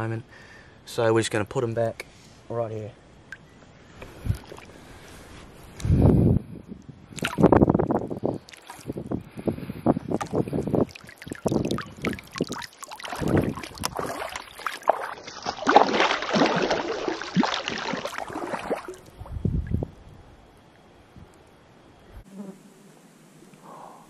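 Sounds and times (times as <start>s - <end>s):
water sloshing and splashing: 4.3s - 4.8s, 7.1s - 7.7s, 8.4s - 9.1s, 10.1s - 19.4s.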